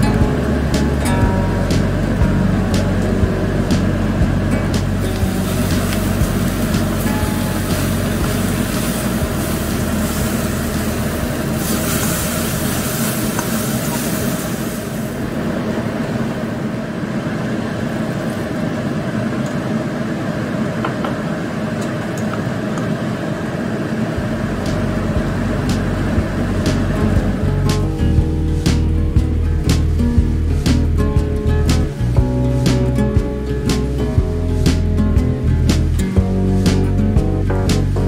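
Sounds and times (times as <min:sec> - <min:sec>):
steady low hum: 0:00.0 - 0:38.0
food sizzling in a wok: 0:04.8 - 0:15.4.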